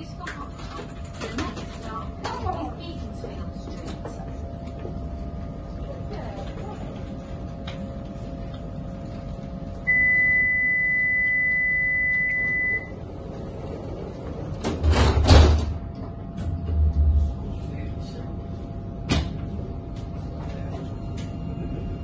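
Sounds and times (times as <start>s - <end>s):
tram low hum: 0.0s - 22.0s
rushing noise with low rumble: 16.1s - 19.1s.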